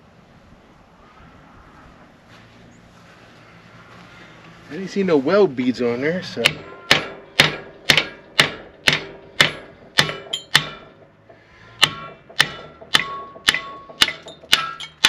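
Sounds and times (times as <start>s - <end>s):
hammer striking steel: 6.4s - 15.0s.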